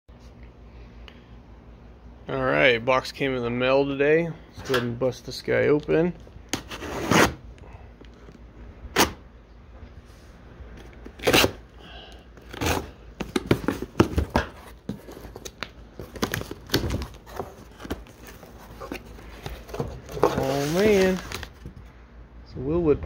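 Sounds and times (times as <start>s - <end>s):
packing tape ripping: 11.1s - 11.6s
cardboard flaps rustling: 12.4s - 21.9s.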